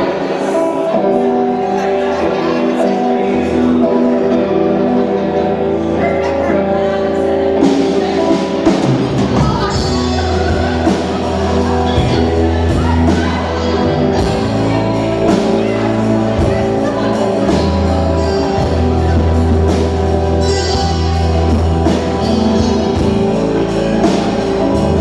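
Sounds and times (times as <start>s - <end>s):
electric guitar: 0.0s - 25.0s
drums and bass beat: 5.7s - 25.0s.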